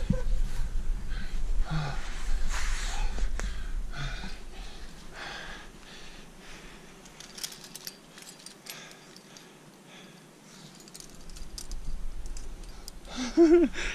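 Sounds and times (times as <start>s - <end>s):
person breathing hard: 1.1s - 7.3s, 8.2s - 11.3s, 13.0s - 13.9s.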